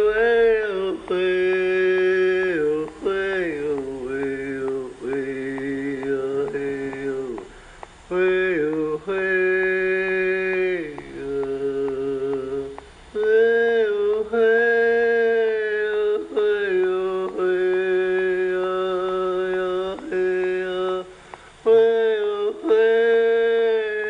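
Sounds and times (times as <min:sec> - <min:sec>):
short breaths: 0:07.4 - 0:08.1, 0:21.1 - 0:21.7.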